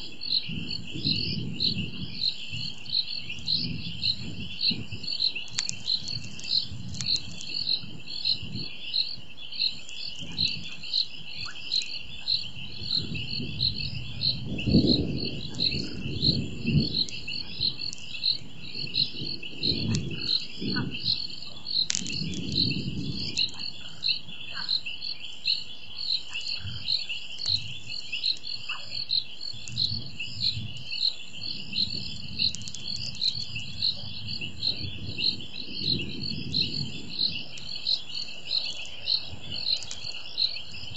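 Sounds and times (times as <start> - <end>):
frogs and insects trilling: 0.0 - 40.9
distant thunder rumbling: 0.2 - 8.7, 12.4 - 24.1, 29.8 - 40.9.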